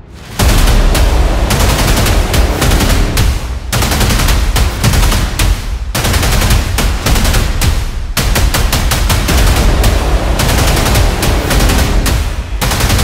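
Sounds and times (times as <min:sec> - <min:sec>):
deep low rumble: 0:00.0 - 0:03.8, 0:09.3 - 0:12.6
machine-gun bursts: 0:08.4 - 0:13.0.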